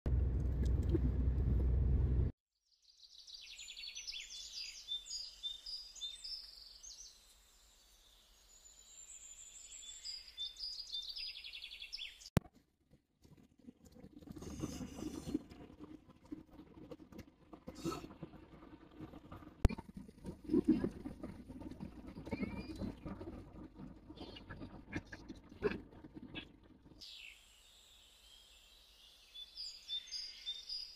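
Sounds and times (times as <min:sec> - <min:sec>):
car cabin rumble: 0:00.1 - 0:02.3
road and wind noise of a car: 0:00.1 - 0:02.3.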